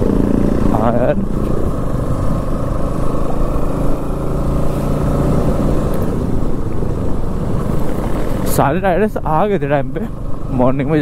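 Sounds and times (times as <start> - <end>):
motorcycle engine running: 0.0 - 11.0
road noise: 0.0 - 11.0.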